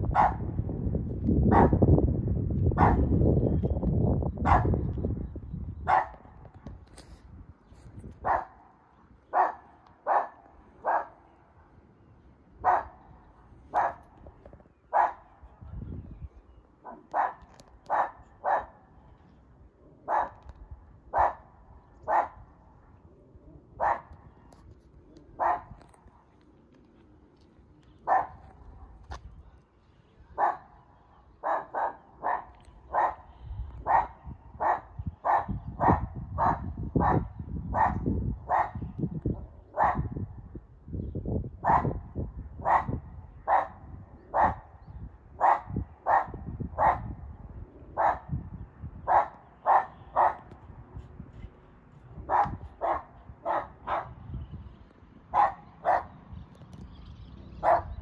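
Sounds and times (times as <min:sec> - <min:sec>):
dog barking: 0:00.1 - 0:00.5, 0:01.5 - 0:01.8, 0:02.8 - 0:03.1, 0:04.4 - 0:04.8, 0:05.9 - 0:06.2, 0:08.2 - 0:08.6, 0:09.3 - 0:11.2, 0:12.6 - 0:13.0, 0:13.7 - 0:14.1, 0:14.9 - 0:15.3, 0:16.8 - 0:18.8, 0:20.0 - 0:20.5, 0:21.1 - 0:22.4, 0:23.8 - 0:24.2, 0:25.4 - 0:25.8, 0:28.0 - 0:28.4, 0:30.3 - 0:30.8, 0:31.4 - 0:38.8, 0:39.8 - 0:40.1, 0:41.6 - 0:42.0, 0:42.6 - 0:44.7, 0:45.4 - 0:47.1, 0:48.0 - 0:48.3, 0:49.1 - 0:50.5, 0:52.2 - 0:54.2, 0:55.3 - 0:56.1, 0:57.6 - 0:58.0.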